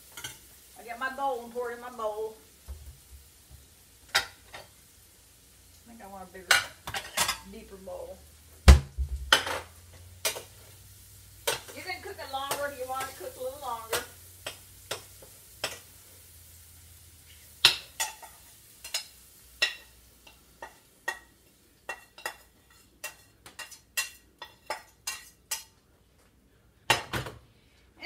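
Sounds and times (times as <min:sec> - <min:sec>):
metal spoon clinking on a skillet: 0:00.1 - 0:00.5, 0:04.1 - 0:04.7, 0:06.4 - 0:07.7, 0:09.3 - 0:10.8, 0:11.4 - 0:16.0, 0:17.2 - 0:25.8.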